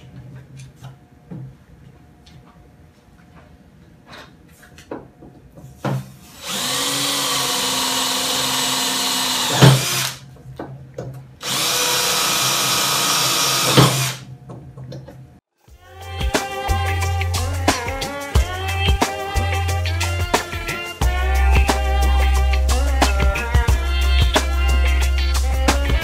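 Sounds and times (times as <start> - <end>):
cordless drill boring metal: 6.3 - 10.2, 11.4 - 14.2.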